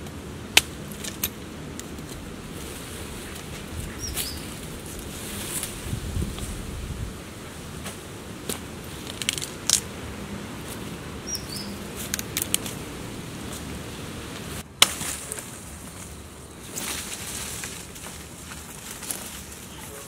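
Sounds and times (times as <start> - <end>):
dry stems snapping and crackling: 0.0 - 6.5, 7.8 - 10.0, 11.9 - 12.8, 14.4 - 19.8
rustling dry leaf litter: 0.8 - 20.0
high chirp: 11.2 - 11.8.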